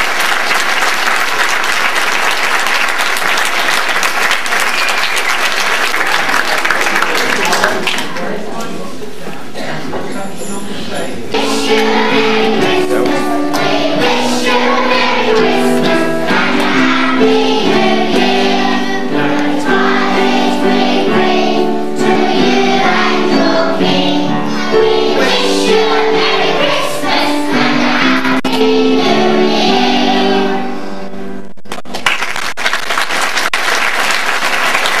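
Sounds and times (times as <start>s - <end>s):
audience clapping: 0.0s - 8.5s, 31.6s - 35.0s
musical accompaniment: 10.3s - 32.0s
children singing: 11.3s - 31.0s.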